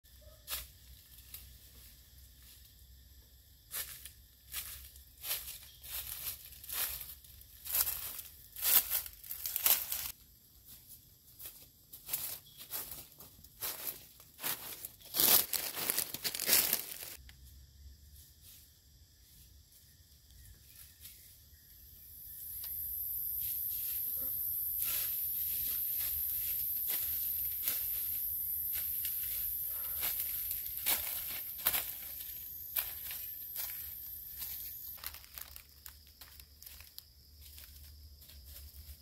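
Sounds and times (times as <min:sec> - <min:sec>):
dry leaves crunching: 0:03.7 - 0:10.2, 0:11.3 - 0:17.2, 0:24.8 - 0:39.0.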